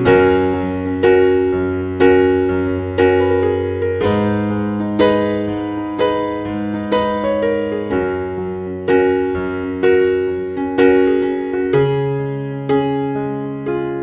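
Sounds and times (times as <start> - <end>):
piano chords ringing: 0.0 - 14.0.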